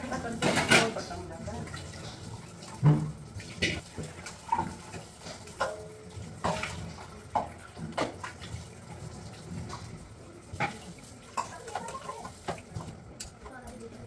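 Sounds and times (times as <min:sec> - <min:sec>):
tap water running: 0:00.0 - 0:14.0
metal utensils clinking: 0:00.1 - 0:02.2.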